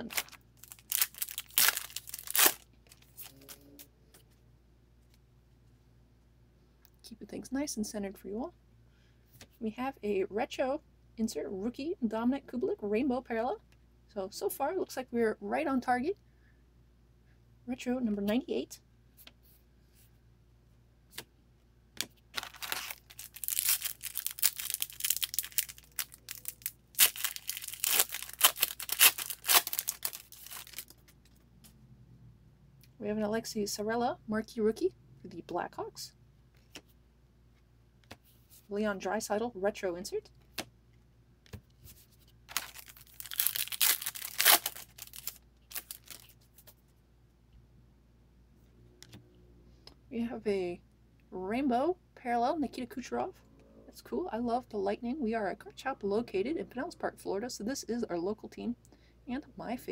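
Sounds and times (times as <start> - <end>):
foil wrapper crackling and rustling: 0.0 - 3.4, 22.3 - 31.1, 42.5 - 46.7.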